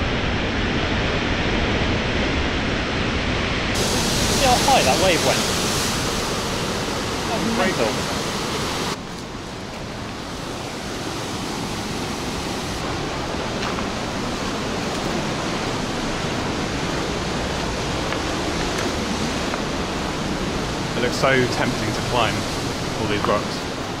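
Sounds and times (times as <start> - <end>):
surf breaking on rocky shore: 3.7 - 9.1.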